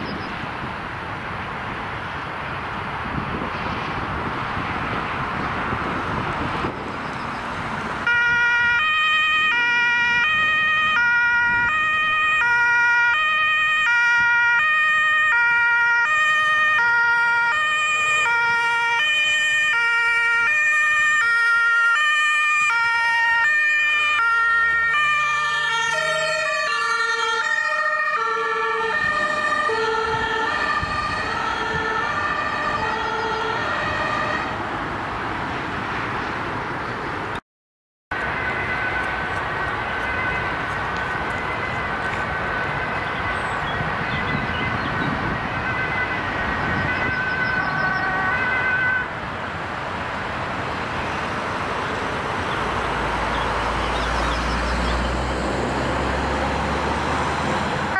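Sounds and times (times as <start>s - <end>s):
traffic noise: 0.0s - 37.4s, 38.1s - 57.9s
two-tone emergency siren: 8.0s - 34.7s, 38.1s - 49.6s.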